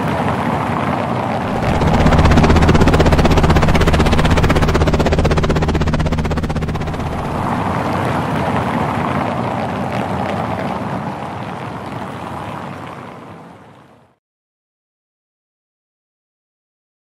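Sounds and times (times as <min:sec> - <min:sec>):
helicopter rotor chop and engine: 0:01.0 - 0:08.2.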